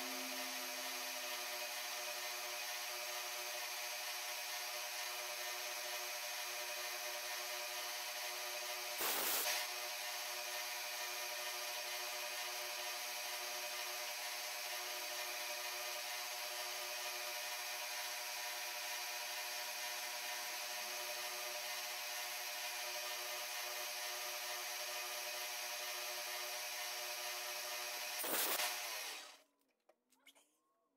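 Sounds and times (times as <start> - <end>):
end mill cutting metal: 0.0 - 2.3
milling spindle running: 27.6 - 29.4.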